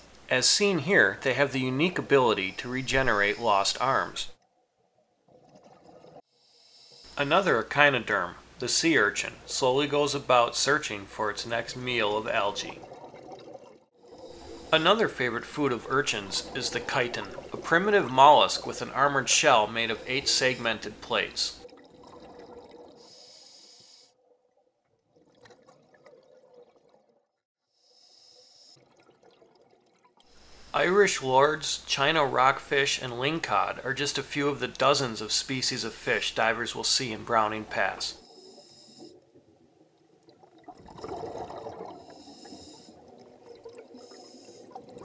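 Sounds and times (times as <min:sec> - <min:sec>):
faint hiss: 0:00.0 - 0:04.4, 0:06.3 - 0:12.7, 0:23.0 - 0:24.2, 0:27.7 - 0:28.8, 0:30.3 - 0:39.2, 0:41.9 - 0:43.0
soft underwater clicks and crackles: 0:04.4 - 0:06.2, 0:37.8 - 0:45.0
underwater exhaled bubbles: 0:05.2 - 0:06.2, 0:10.8 - 0:23.4, 0:24.2 - 0:27.3, 0:37.6 - 0:45.0
steady water rush: 0:14.3 - 0:21.7.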